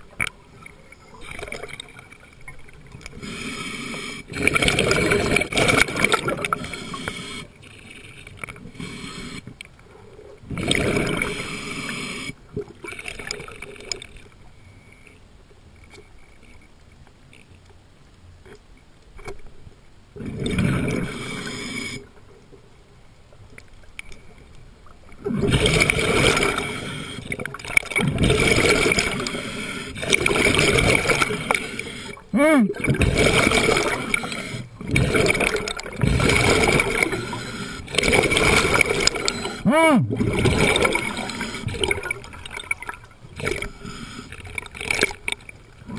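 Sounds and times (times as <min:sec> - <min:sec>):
diver's regulator breathing underwater: 0:03.1 - 0:08.1, 0:08.7 - 0:09.6, 0:10.5 - 0:12.4, 0:20.7 - 0:22.1, 0:28.1 - 0:42.7, 0:43.4 - 0:45.1
exhaled bubbles rushing: 0:04.3 - 0:06.5, 0:10.5 - 0:11.4, 0:25.2 - 0:26.7, 0:27.6 - 0:29.3, 0:30.0 - 0:31.6, 0:32.7 - 0:43.7.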